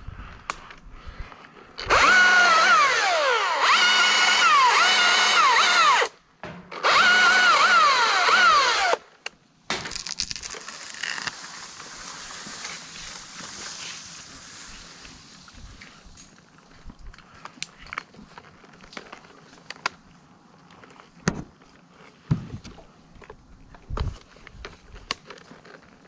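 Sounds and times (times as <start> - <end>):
electric chainsaw motor whining: 1.8 - 6.2, 6.8 - 9.0
crackling rustle: 9.8 - 26.0.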